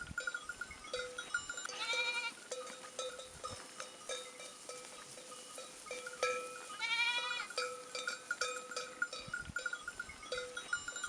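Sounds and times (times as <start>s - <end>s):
sheep bells tinkling: 0.0s - 11.0s
sheep bleat: 1.7s - 2.4s, 6.7s - 7.5s.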